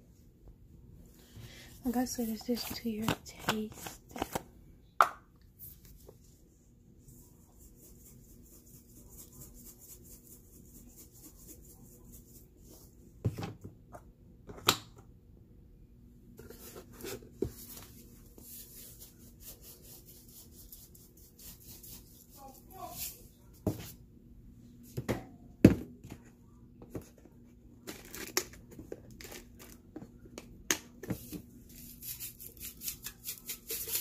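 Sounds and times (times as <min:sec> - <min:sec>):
seasoning shaken from bottle: 0:31.7 - 0:34.0.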